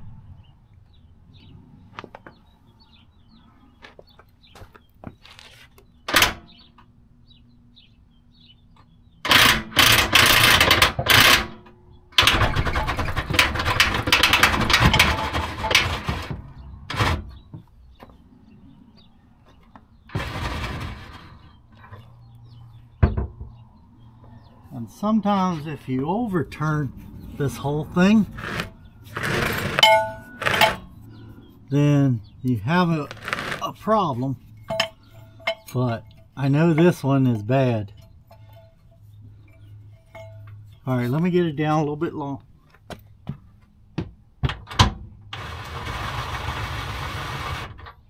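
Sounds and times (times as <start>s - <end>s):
power drill running: 28.4s - 30.8s, 33.1s - 33.6s.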